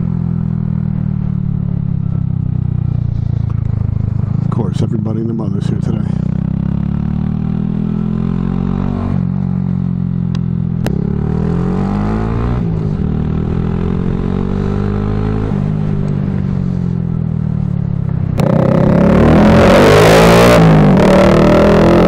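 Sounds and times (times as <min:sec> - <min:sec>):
motorcycle engine: 0:00.0 - 0:22.0.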